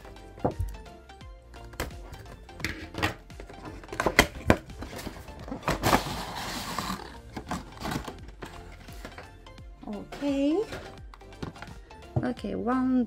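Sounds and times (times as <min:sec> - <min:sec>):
soft background music: 0:00.0 - 0:13.0
packaging clicks and knocks: 0:01.6 - 0:09.4, 0:10.7 - 0:11.8
packaging rustling: 0:03.5 - 0:09.3.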